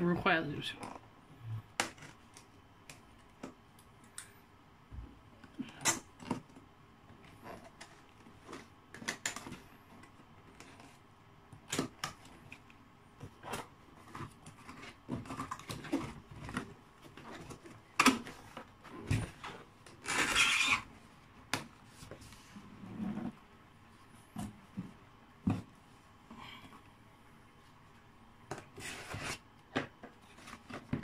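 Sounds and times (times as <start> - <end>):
rasping cardboard scrape: 20.0 - 20.9, 28.8 - 29.4.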